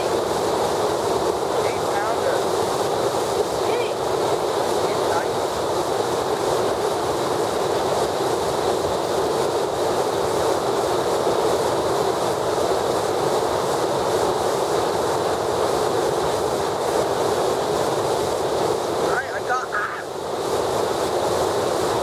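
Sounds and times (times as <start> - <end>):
water rushing over dam: 0.0 - 22.0.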